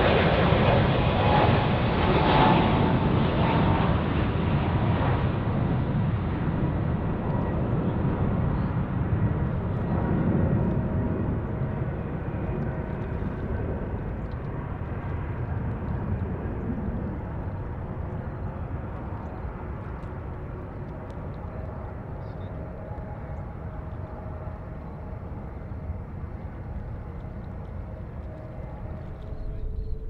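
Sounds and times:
jet engines rumbling: 0:00.0 - 0:30.0
faint steady whine: 0:11.3 - 0:30.0.

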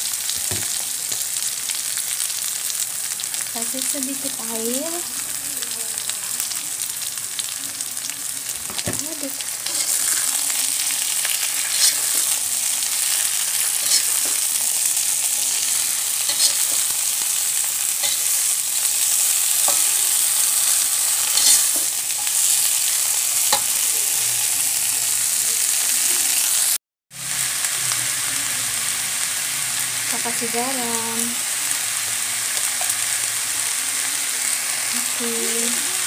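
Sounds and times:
leaves sizzling in hot oil: 0:00.0 - 0:36.0
metal spatula scraping a pan: 0:09.6 - 0:23.8.

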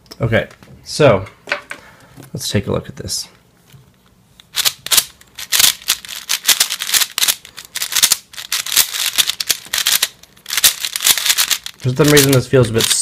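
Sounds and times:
speed cube clicking: 0:04.5 - 0:13.0.

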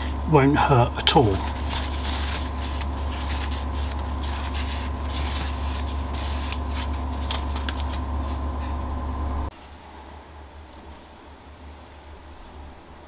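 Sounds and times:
steady low hum: 0:00.0 - 0:13.0
paper towel rubbing on rails: 0:01.1 - 0:08.8.

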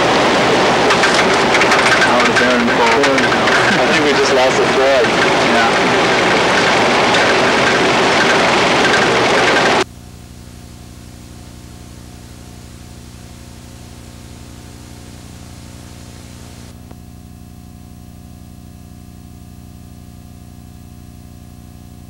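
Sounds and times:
wind tunnel airflow rushing: 0:00.0 - 0:09.8
steady low hum: 0:00.0 - 0:22.0.

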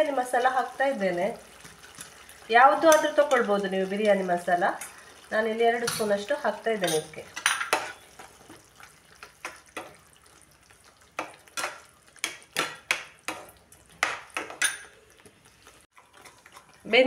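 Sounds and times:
metal spoon scraping a pan: 0:05.8 - 0:08.5, 0:16.0 - 0:17.0.

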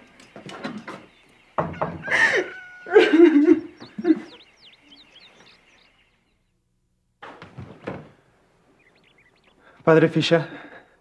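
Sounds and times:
faint bird chirps: 0:00.1 - 0:06.6, 0:08.7 - 0:09.8
soft knocks: 0:00.4 - 0:02.1.

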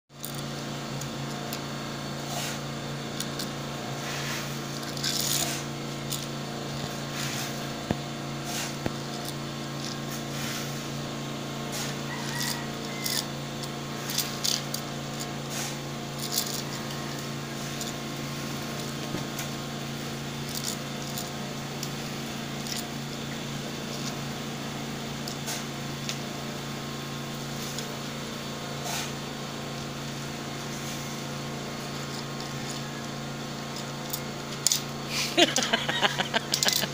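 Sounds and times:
steady low hum: 0:00.1 - 0:36.9
toy car clicks and scrapes on wood: 0:02.3 - 0:07.6, 0:11.7 - 0:18.0, 0:20.4 - 0:22.0.

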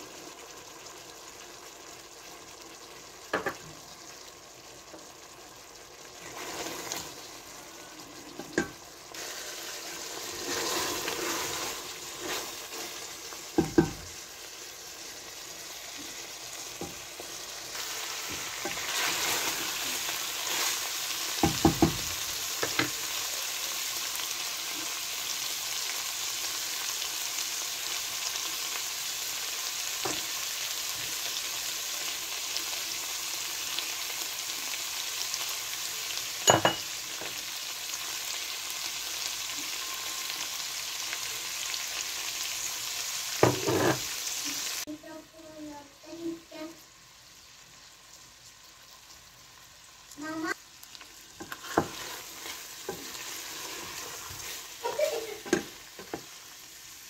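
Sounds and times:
food sizzling in a pot: 0:00.0 - 0:57.0
spatula knocking against a pot: 0:13.6 - 0:14.0.

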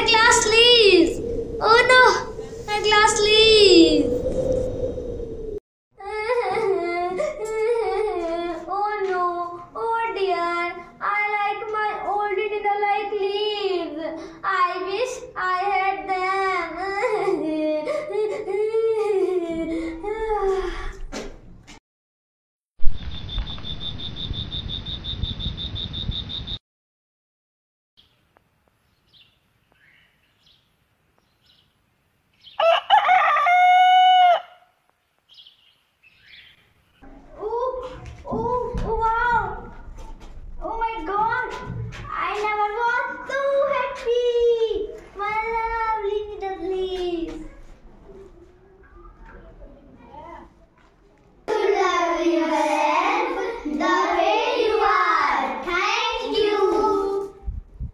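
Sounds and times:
rooster crowing: 0:32.6 - 0:34.7.

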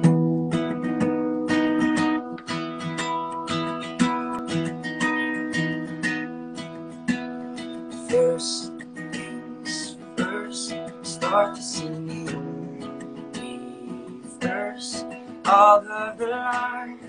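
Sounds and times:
acoustic guitar strumming: 0:00.0 - 0:17.0
man singing: 0:07.9 - 0:17.0.

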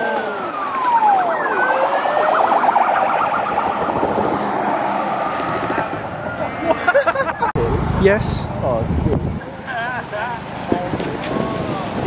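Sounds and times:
police siren yelping: 0:00.0 - 0:06.7
police siren wailing: 0:00.0 - 0:06.8.

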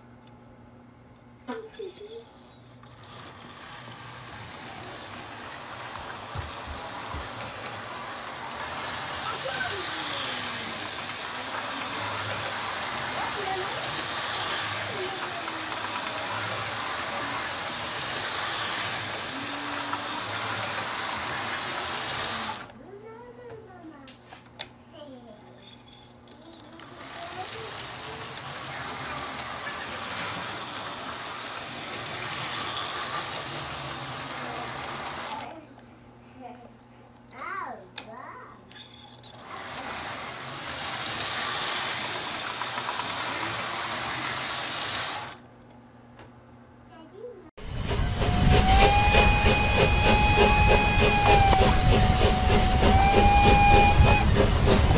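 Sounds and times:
toy train motor whirring: 0:01.5 - 0:22.8, 0:24.5 - 0:35.6, 0:38.6 - 0:45.5, 0:47.8 - 0:54.9
wheels clicking over track joints: 0:02.8 - 0:22.7, 0:25.7 - 0:35.5, 0:48.2 - 0:54.9.

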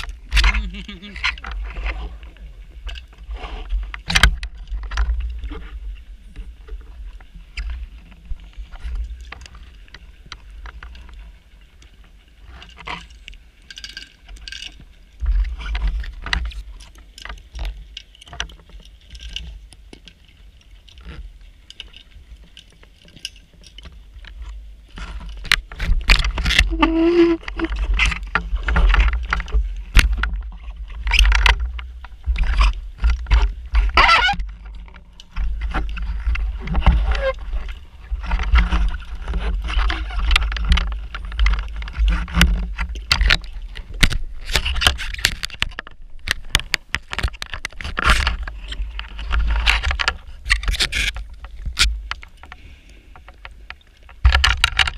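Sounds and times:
clicks and knocks: 0:53.2 - 0:54.9.

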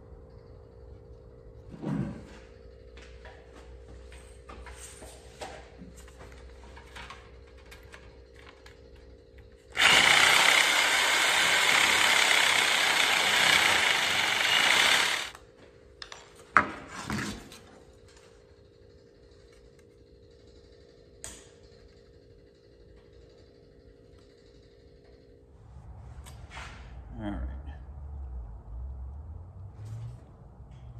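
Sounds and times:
power tool cutting sheet metal: 0:09.7 - 0:15.3.

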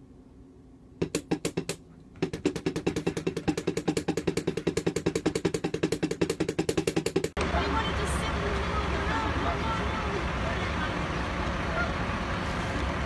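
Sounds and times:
drumsticks striking drum pads: 0:01.0 - 0:07.4.

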